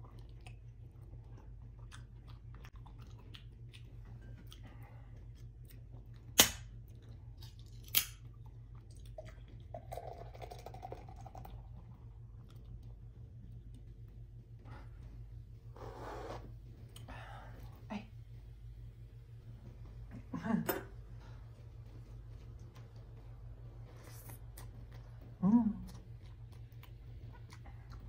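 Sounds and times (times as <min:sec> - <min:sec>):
chewing with mouth clicks: 0:00.0 - 0:14.2, 0:21.8 - 0:28.0
fizzy drink poured into glass: 0:09.8 - 0:11.6.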